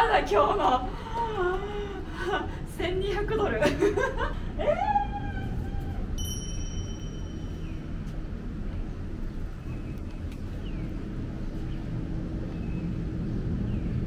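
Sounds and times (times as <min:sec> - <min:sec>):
low outdoor rumble: 0:00.0 - 0:14.0
thin high steady tone: 0:06.2 - 0:08.2.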